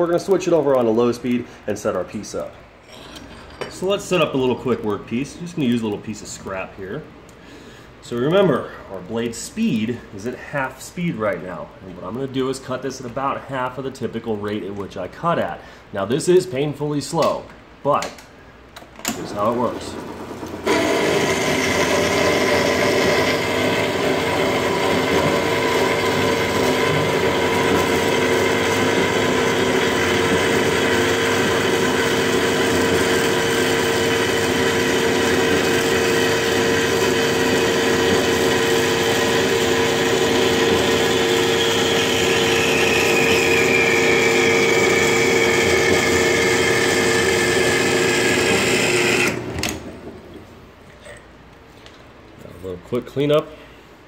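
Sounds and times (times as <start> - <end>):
band saw cutting metal: 20.7 - 49.4.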